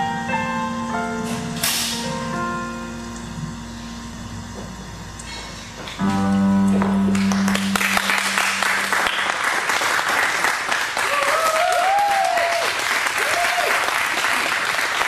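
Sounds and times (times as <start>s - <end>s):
live band closing chord: 0.0s - 10.8s
audience applause: 7.2s - 15.0s.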